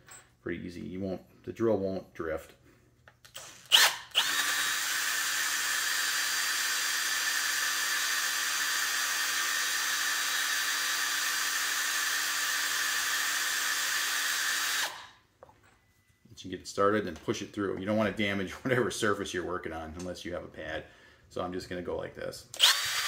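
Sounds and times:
cordless drill drilling plastic: 0:03.4 - 0:15.1, 0:22.6 - 0:23.0.

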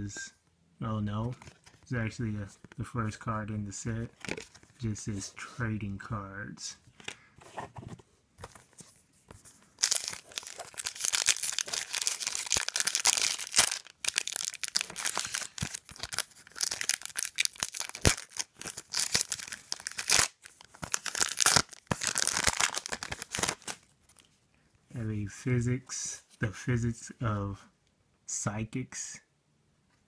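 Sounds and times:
wrapper tearing and crinkling: 0:09.8 - 0:23.9.

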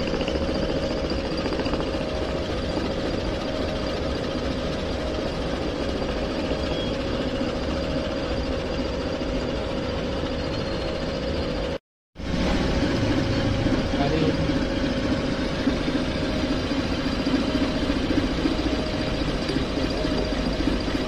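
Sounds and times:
lathe humming: 0:12.3 - 0:21.0.

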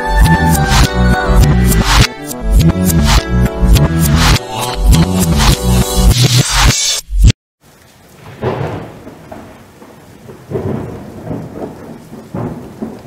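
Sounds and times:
music: 0:00.0 - 0:07.3
steady rain: 0:07.6 - 0:13.0
low rolling thunder: 0:08.1 - 0:13.0.

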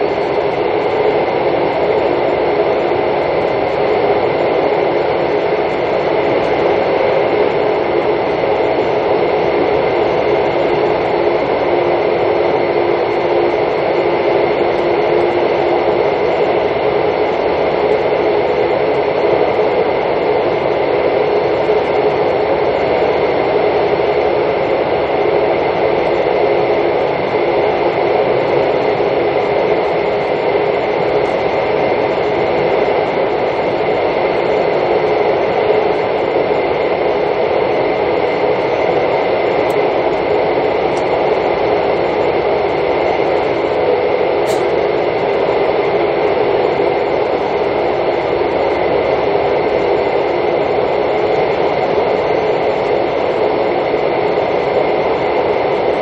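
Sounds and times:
train rumbling along track: 0:37.2 - 0:50.2.

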